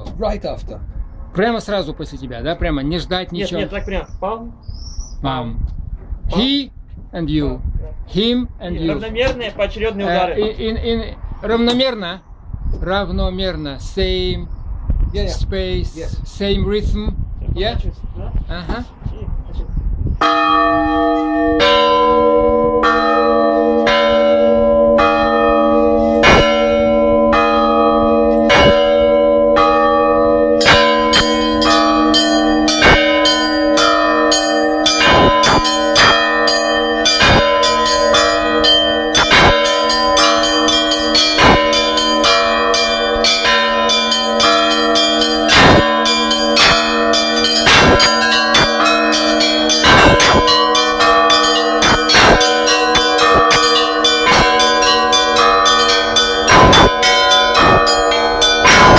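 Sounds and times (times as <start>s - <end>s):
large church bells alternating: 20.2s - 58.9s
small high bells ringing: 20.2s - 58.9s.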